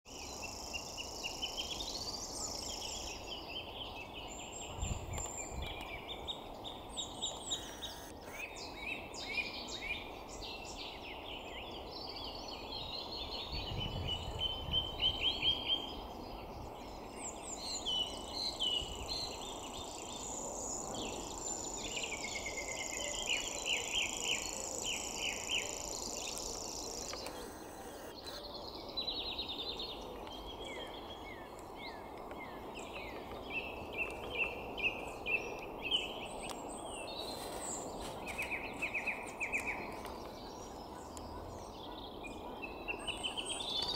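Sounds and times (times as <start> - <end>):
other birds singing: 0.1 - 43.9
bird reeling trill: 7.3 - 8.4.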